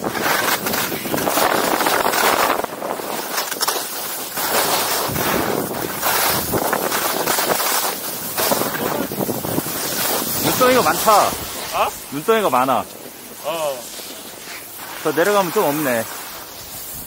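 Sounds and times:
wind rushing over microphone: 0.0 - 3.6, 4.8 - 14.1
skis scraping over snow: 0.0 - 17.0.

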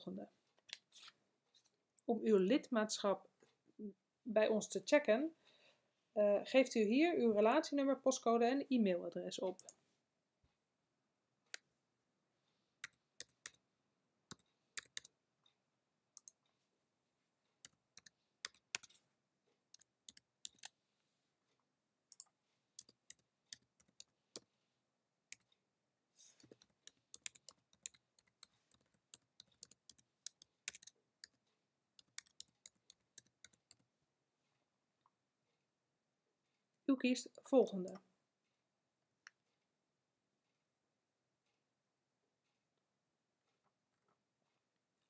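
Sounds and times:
faint keyboard typing: 9.5 - 9.8, 12.8 - 13.7, 14.3 - 16.6, 17.5 - 20.8, 22.1 - 24.5, 25.3 - 25.6, 26.3 - 34.0.

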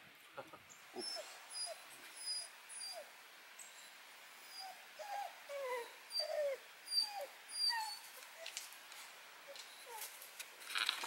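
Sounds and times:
dog whimpering: 1.0 - 3.1, 4.4 - 8.6, 9.5 - 10.2.

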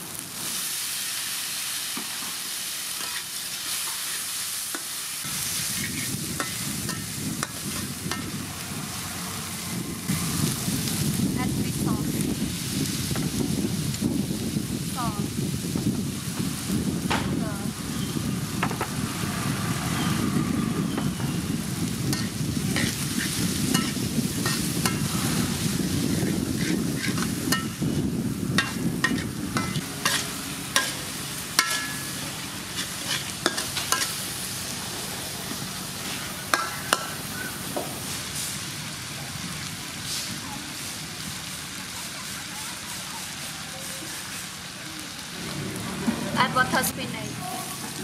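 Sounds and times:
food sizzling in a wok: 0.0 - 48.0
metal spatula scraping wok: 2.9 - 11.0, 22.0 - 38.6.

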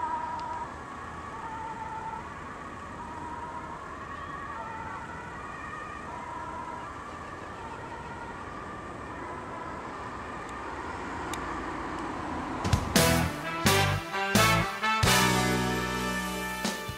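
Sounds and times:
ambulance siren warbling: 0.0 - 16.5
road traffic noise: 0.0 - 16.9
loud music: 12.7 - 16.9.

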